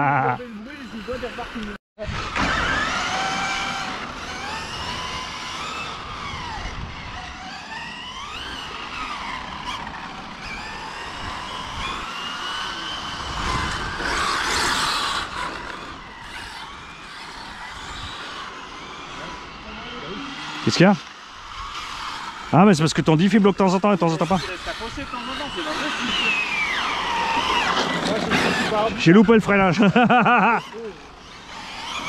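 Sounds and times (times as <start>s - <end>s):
electric motors whining: 0.0s - 32.0s
tyres sliding on stones: 21.8s - 30.9s.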